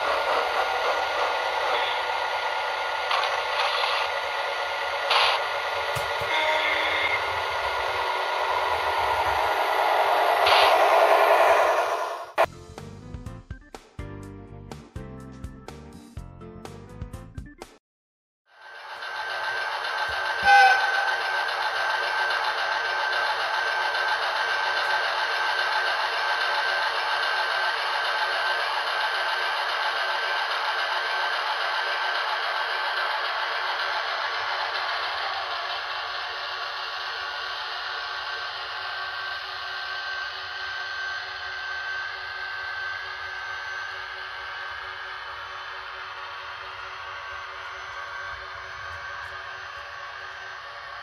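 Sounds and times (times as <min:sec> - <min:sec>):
model locomotive whining: 0:00.0 - 0:12.5, 0:18.5 - 0:51.0
high tone: 0:05.8 - 0:12.5
horn-like toot: 0:06.1 - 0:12.5, 0:20.3 - 0:21.2.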